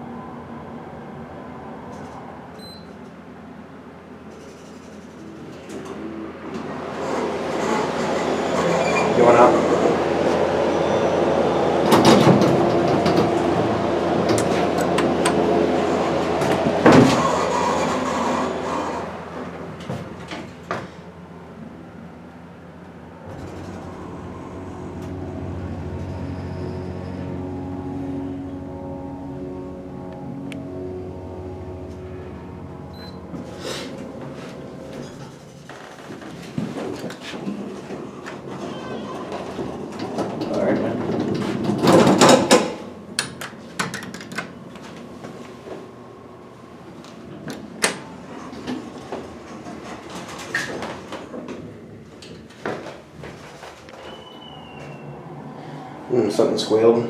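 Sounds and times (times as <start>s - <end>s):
elevator pump motor humming: 4.9s - 57.0s
elevator doors knocking: 11.7s - 17.5s, 36.1s - 44.5s.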